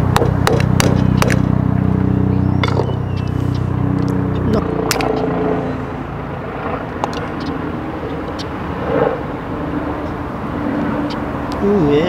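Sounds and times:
distant engine drone: 0.0 - 12.0.

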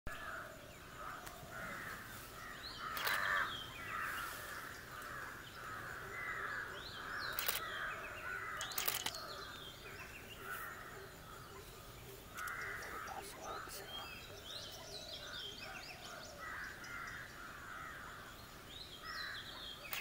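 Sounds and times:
sharp clicks: 2.9 - 3.3, 7.2 - 7.7, 8.6 - 9.2.

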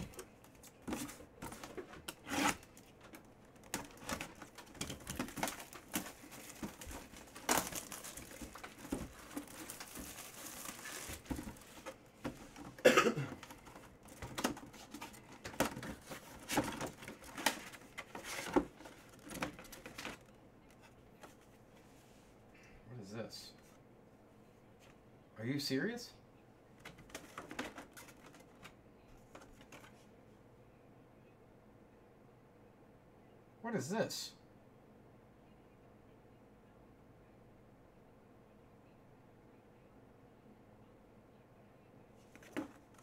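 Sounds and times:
cardboard packaging rustles: 0.0 - 20.3
plastic wrapping crinkling: 1.4 - 12.0.

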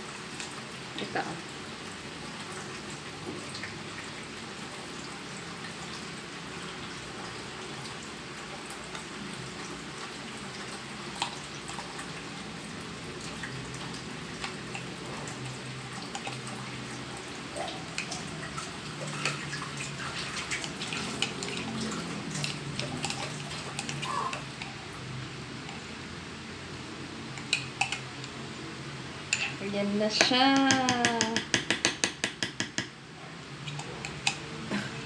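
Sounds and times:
soft wet drips: 5.0 - 25.0
metal spoon scraping ceramic mug: 29.3 - 29.6.

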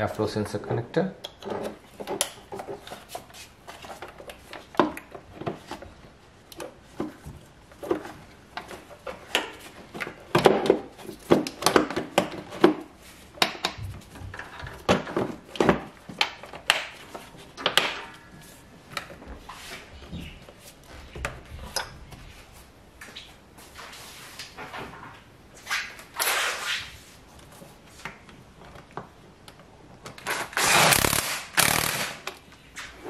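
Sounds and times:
plastic parts knocking and clicking: 6.6 - 17.0.

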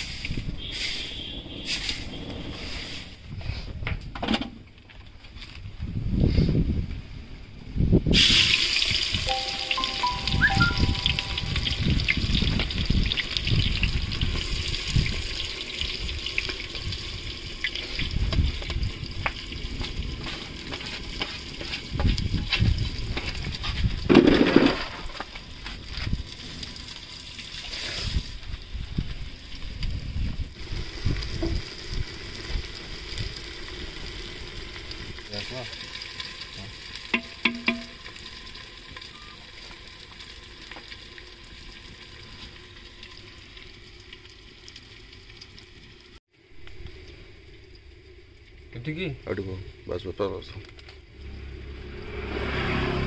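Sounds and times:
pot scrape or clatter: 20.3 - 25.3
food sloshing and knocking in pot: 37.1 - 38.0.

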